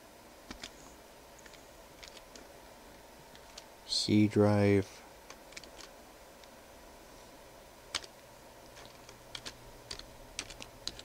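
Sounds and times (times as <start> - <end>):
keyboard key clicks: 8.8 - 11.0.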